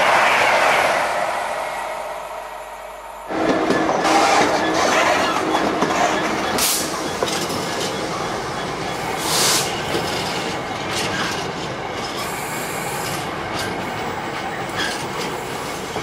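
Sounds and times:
train rushing through station: 0:00.0 - 0:16.0
train passing with wheel clicks: 0:03.3 - 0:16.0.

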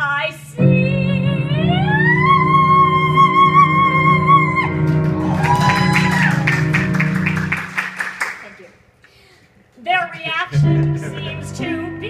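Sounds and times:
people clapping: 0:04.7 - 0:08.8
instrumental accompaniment: 0:10.5 - 0:12.0.

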